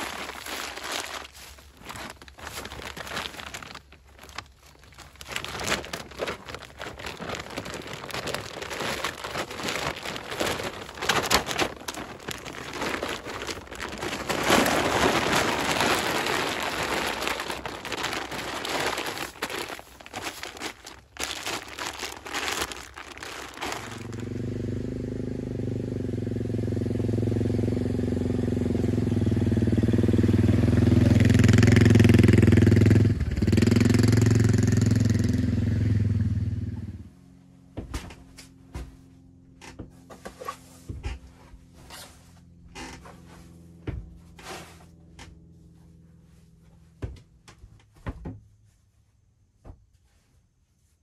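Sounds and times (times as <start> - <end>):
bedding rustling: 0.0 - 24.3
atv engine running: 23.5 - 37.4.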